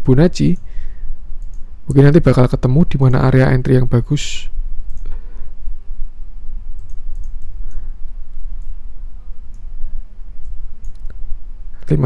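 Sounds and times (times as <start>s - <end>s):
steady low hum: 0.0s - 12.0s
computer mouse clicks: 1.4s - 1.7s, 4.8s - 5.2s, 6.8s - 8.8s, 10.4s - 11.2s.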